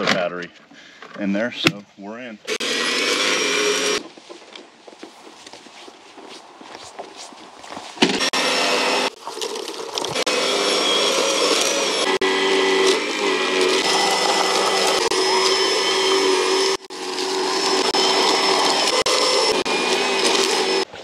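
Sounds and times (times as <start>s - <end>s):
snow blower motor whine: 2.5s - 4.1s, 8.1s - 20.9s.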